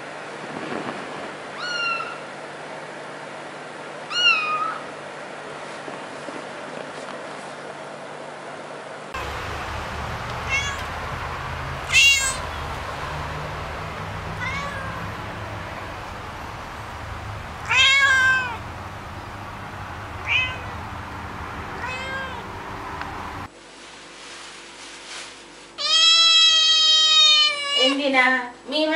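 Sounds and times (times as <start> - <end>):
cat meowing: 1.6 - 2.2, 4.1 - 4.9, 10.0 - 18.8, 20.0 - 21.1, 21.8 - 22.7, 25.8 - 28.0
steady low hum: 9.2 - 23.5.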